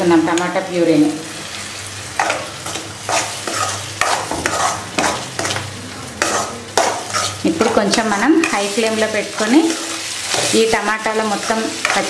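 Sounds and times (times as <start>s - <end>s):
tomato puree sizzling in hot oil: 0.0s - 12.0s
metal ladle scraping pan: 2.2s - 5.6s, 6.2s - 10.8s.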